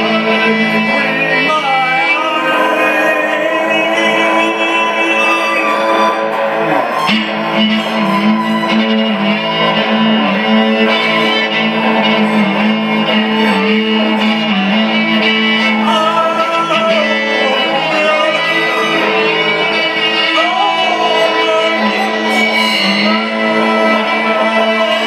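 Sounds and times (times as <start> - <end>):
guitar accompaniment: 0.0 - 25.0
violin melody with vibrato: 0.0 - 25.0.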